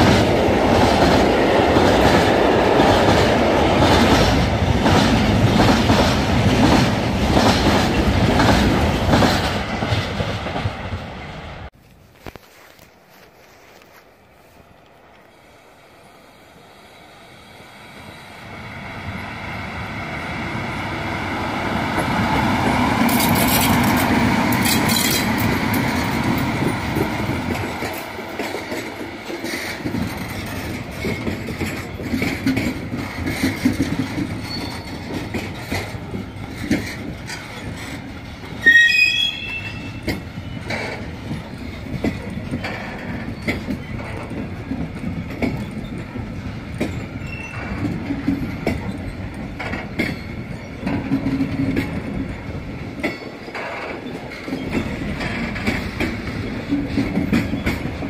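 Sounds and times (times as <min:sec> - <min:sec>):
freight train rumble: 0:00.0 - 0:11.8, 0:13.1 - 0:58.0
wheels clacking over rail joints: 0:21.8 - 0:38.8, 0:39.4 - 0:58.0
high metallic squeal: 0:38.6 - 0:40.1.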